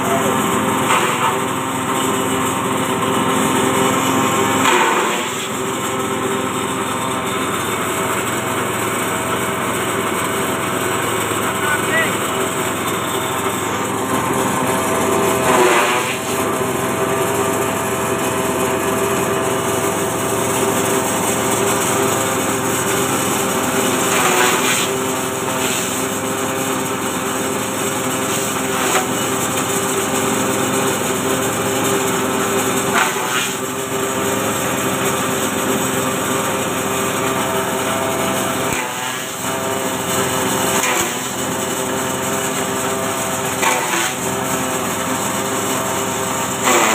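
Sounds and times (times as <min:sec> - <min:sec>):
forage chopper motor hum: 0:00.0 - 0:46.9
blades chopping grass: 0:13.6 - 0:16.6, 0:21.2 - 0:26.1, 0:43.3 - 0:45.2, 0:45.8 - 0:46.9.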